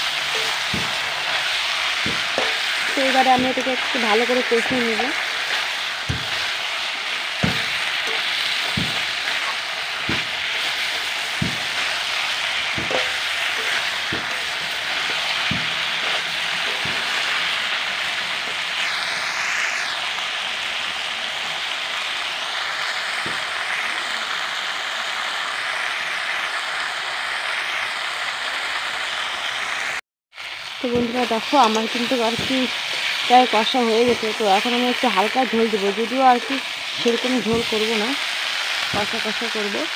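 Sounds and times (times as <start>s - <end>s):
metal spatula scraping a pan: 0.0s - 19.0s
food sizzling in a pan: 0.0s - 39.9s.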